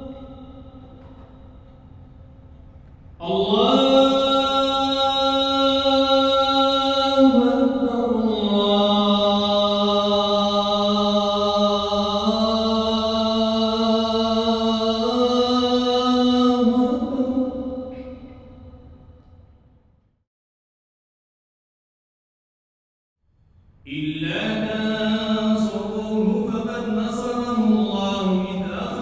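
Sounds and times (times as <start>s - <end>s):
man chanting melodically: 3.2s - 18.7s, 23.9s - 29.0s.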